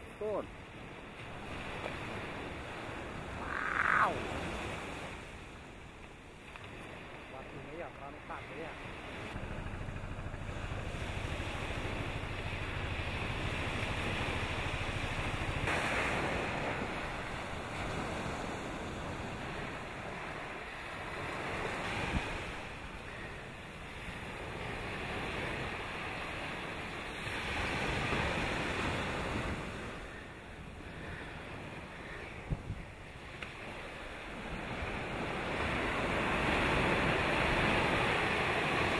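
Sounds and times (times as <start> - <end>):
sea waves: 0.0 - 38.9
wind buffeting microphone: 8.7 - 33.2.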